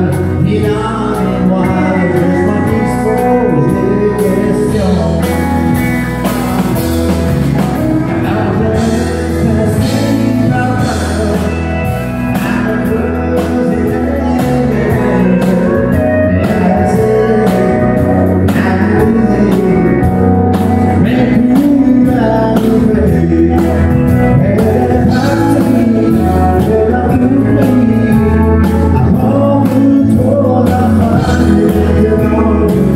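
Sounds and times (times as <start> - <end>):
drum kit: 0.0 - 32.9
electric guitar: 0.0 - 32.9
man singing: 0.0 - 32.9
pedal steel guitar: 0.0 - 32.9.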